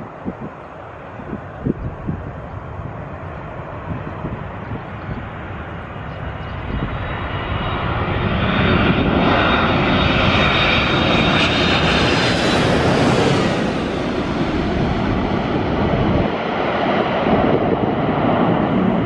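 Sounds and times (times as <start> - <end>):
jet engine noise overhead: 0.0 - 19.0.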